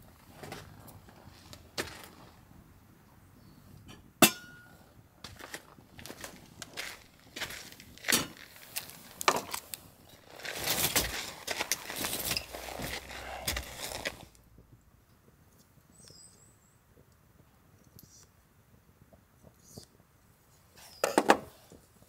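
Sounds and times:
quiet forest air: 0.0s - 22.0s
bird chirping: 3.3s - 3.8s, 15.8s - 16.9s
plastic packaging crinkling: 6.1s - 14.3s.

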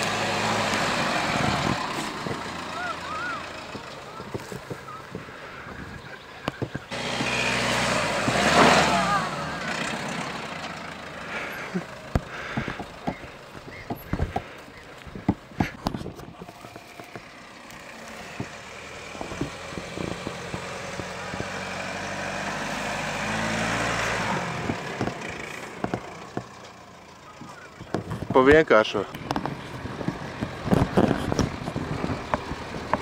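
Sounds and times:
car engine running: 0.0s - 33.0s
sharp knocks and clicks: 12.1s - 17.3s, 18.3s - 21.6s, 24.6s - 26.8s.

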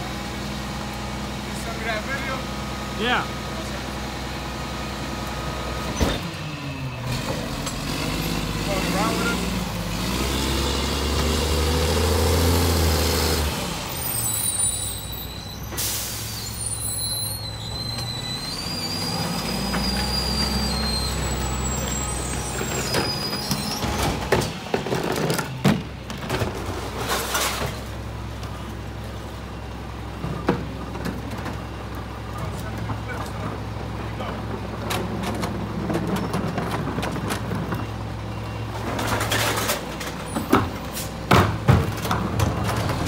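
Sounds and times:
truck diesel engine: 0.0s - 43.0s
high squealing: 13.9s - 24.3s
air brakes hissing: 14.1s - 24.1s
bins clattering and thumping: 22.6s - 27.9s, 34.7s - 37.9s, 38.8s - 43.0s.

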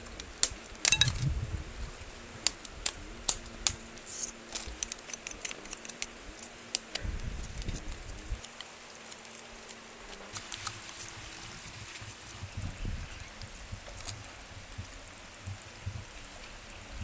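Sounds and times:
knife shaving wood: 2.4s - 12.5s.

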